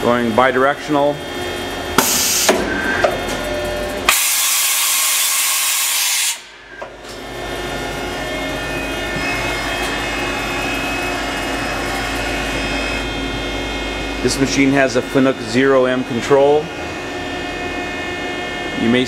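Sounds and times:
machine hum with whining tones: 0.0s - 19.0s
loud air hiss: 2.0s - 2.5s, 4.1s - 6.6s.

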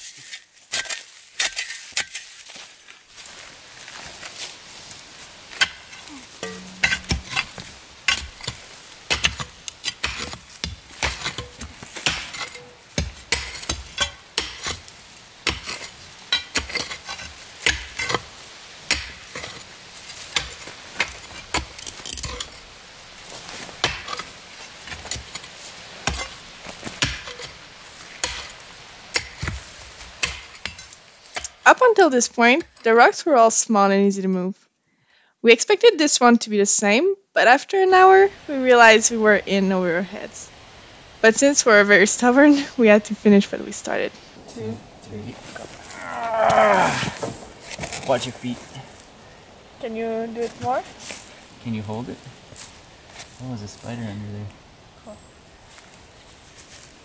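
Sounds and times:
shovel scraping stony soil: 0.0s - 3.4s, 4.1s - 33.1s, 41.7s - 49.1s.

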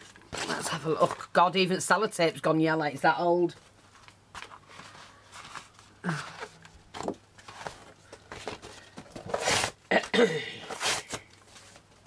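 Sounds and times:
paper rustling: 3.6s - 9.8s.

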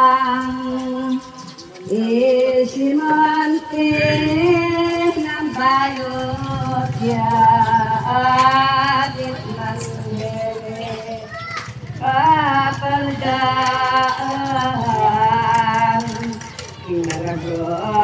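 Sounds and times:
person singing slow song: 0.0s - 18.0s.

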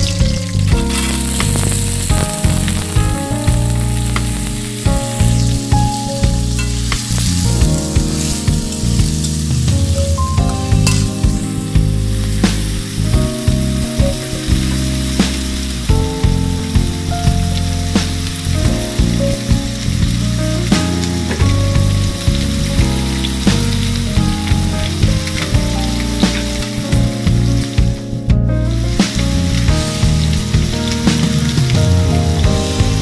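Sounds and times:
vegetables sizzling in hot oil: 0.0s - 7.4s, 21.2s - 27.7s.

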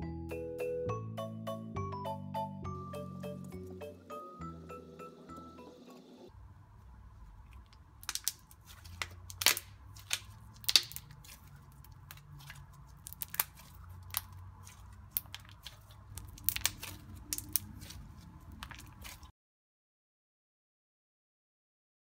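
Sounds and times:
slime clicking and popping: 7.6s - 19.3s.

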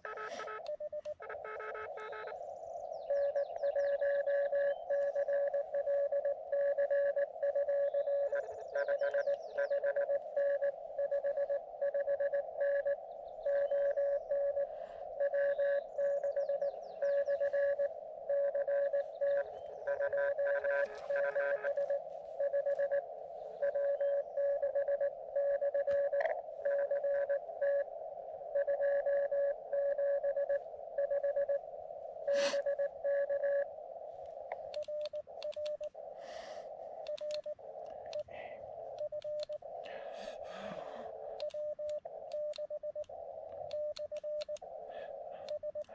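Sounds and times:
morse code tone: 0.0s - 27.9s, 28.5s - 31.7s, 32.3s - 33.7s
clicks: 34.2s - 36.0s, 37.0s - 38.3s, 38.9s - 40.0s, 41.4s - 44.7s.

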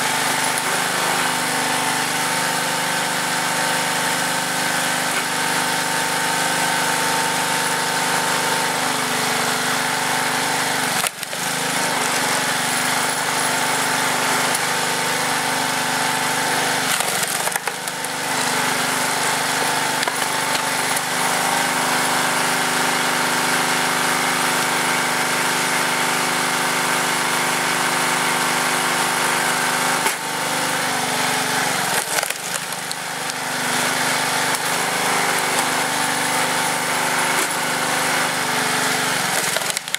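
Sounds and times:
small engine running steadily: 0.0s - 39.9s
wood cracking and knocking: 11.0s - 12.4s, 16.8s - 18.2s, 19.9s - 21.0s, 31.8s - 33.4s, 39.3s - 39.9s.

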